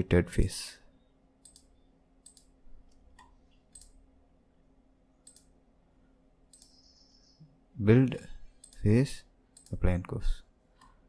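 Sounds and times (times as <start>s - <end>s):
faint steady hum: 0.0s - 11.0s
computer mouse clicks: 1.4s - 4.0s, 5.2s - 5.6s, 6.5s - 6.9s, 8.6s - 8.9s, 9.6s - 9.8s.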